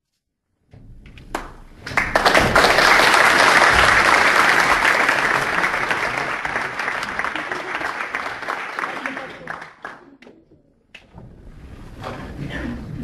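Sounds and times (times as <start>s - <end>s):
audience applauding: 1.3s - 10.3s.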